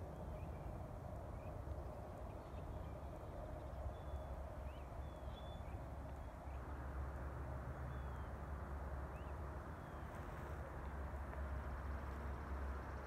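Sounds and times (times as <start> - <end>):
birds chirping faintly: 0.0 - 6.8
low outdoor rumble: 0.0 - 13.0.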